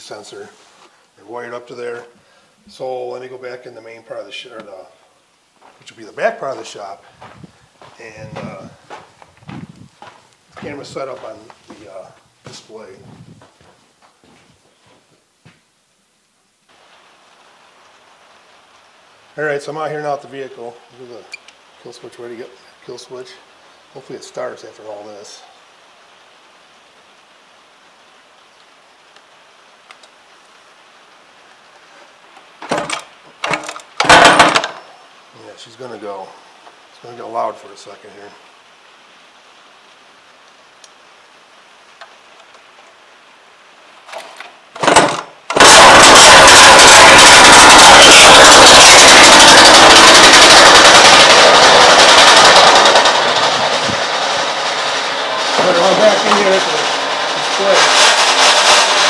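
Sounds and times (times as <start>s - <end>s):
low steady hiss: 0.0s - 59.0s
engine pull-starter cranking: 33.5s - 34.8s, 44.2s - 59.0s.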